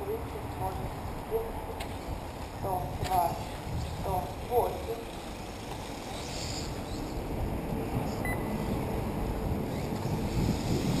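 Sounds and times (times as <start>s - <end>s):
wind rumbling on microphone: 0.0s - 11.0s
short electronic beep: 8.2s - 8.6s.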